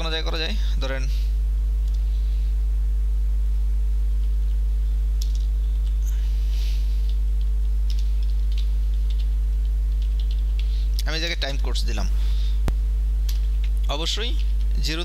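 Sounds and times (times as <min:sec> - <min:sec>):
low electrical mains hum: 0:00.0 - 0:15.0
faint keyboard clicks: 0:07.0 - 0:10.7.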